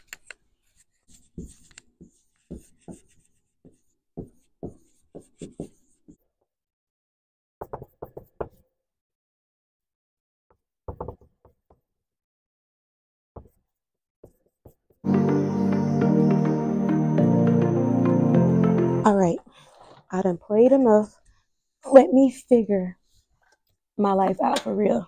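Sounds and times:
marker writing on whiteboard: 0.0s - 6.3s, 7.6s - 8.7s, 13.4s - 15.1s
background music: 15.0s - 19.4s.

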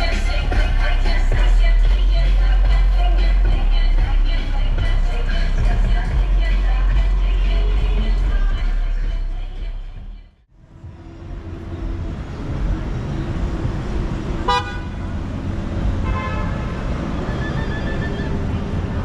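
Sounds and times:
background music: 0.0s - 12.9s
city street traffic: 0.0s - 19.0s
vehicle horn toot: 14.4s - 15.1s, 16.0s - 16.9s.

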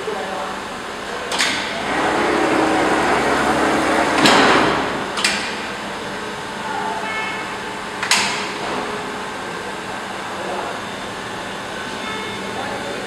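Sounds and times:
pneumatic clamps clacking: 1.3s - 2.1s, 4.1s - 5.6s
beam saw running: 1.5s - 13.0s.

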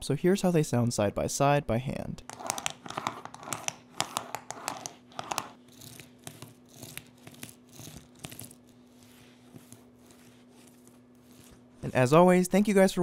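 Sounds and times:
plastic wheels clattering on tile: 2.3s - 5.6s.

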